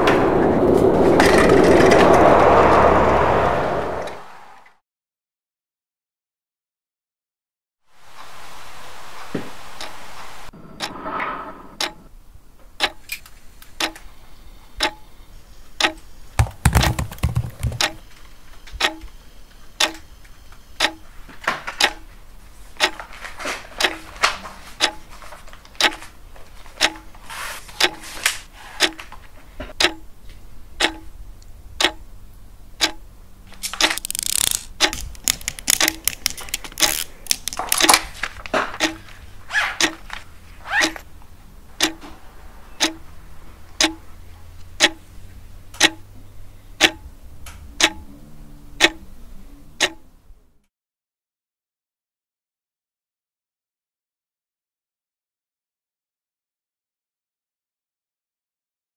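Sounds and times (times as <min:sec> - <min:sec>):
clock ticking: 0:11.8 - 0:12.0, 0:12.8 - 0:13.1, 0:13.8 - 0:14.1, 0:14.8 - 0:15.1, 0:15.8 - 0:18.0, 0:18.8 - 0:19.1, 0:19.8 - 0:20.1, 0:20.8 - 0:21.1, 0:21.8 - 0:22.1, 0:22.8 - 0:23.1, 0:23.7 - 0:24.2, 0:24.8 - 0:25.1, 0:25.7 - 0:26.1, 0:26.8 - 0:27.2, 0:27.8 - 0:28.2, 0:28.8 - 0:29.2, 0:29.8 - 0:30.1, 0:30.8 - 0:31.2, 0:31.8 - 0:33.1, 0:33.8 - 0:38.1, 0:38.7 - 0:40.2, 0:40.8 - 0:41.0, 0:41.8 - 0:42.1, 0:42.8 - 0:43.1, 0:43.7 - 0:45.1, 0:45.8 - 0:46.1, 0:46.8 - 0:47.1, 0:47.8 - 0:48.2, 0:48.8 - 0:49.1, 0:49.8 - 0:50.1
paper pages rustling: 0:23.1 - 0:28.5, 0:33.6 - 0:38.8.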